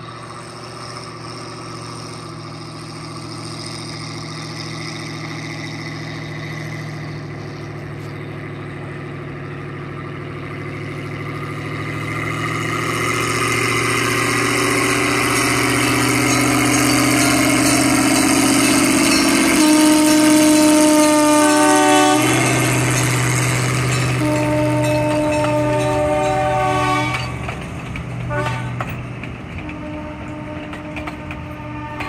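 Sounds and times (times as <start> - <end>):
locomotive engine running: 0.0 - 32.0
locomotive horn: 14.2 - 27.6, 28.3 - 28.9, 29.6 - 32.0.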